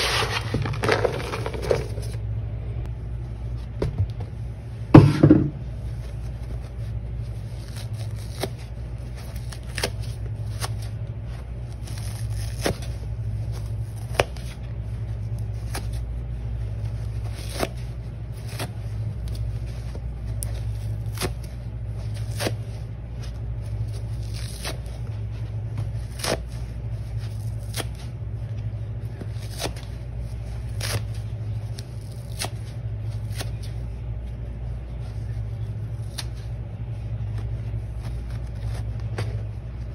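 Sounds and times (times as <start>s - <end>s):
sponge tearing: 0.0s - 2.2s, 6.6s - 11.0s, 11.6s - 14.6s, 15.2s - 28.1s, 29.1s - 33.8s, 35.1s - 36.6s
steady low hum: 0.0s - 39.9s.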